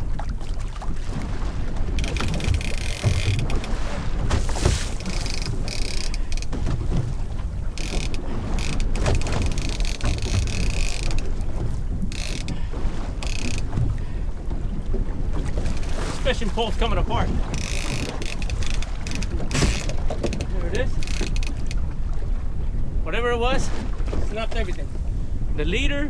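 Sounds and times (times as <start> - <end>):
wind noise on microphone: 0.0 - 26.0
fishing reel whirring: 2.0 - 3.7, 5.0 - 6.5, 7.8 - 11.3, 12.1 - 12.6, 13.2 - 13.7, 17.5 - 20.0, 20.9 - 21.8.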